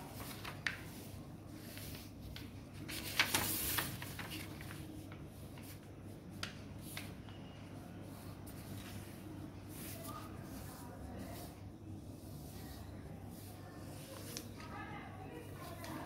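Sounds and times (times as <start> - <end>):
paper rustling and crinkling: 0.0 - 7.2, 13.4 - 16.0.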